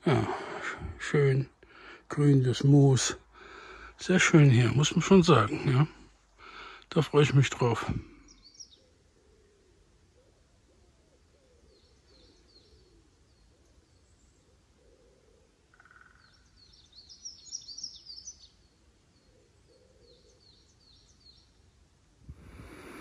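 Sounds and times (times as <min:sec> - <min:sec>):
faint low bird call: 0:08.0 - 0:21.5
birds chirping and singing: 0:08.2 - 0:09.6, 0:11.4 - 0:21.6.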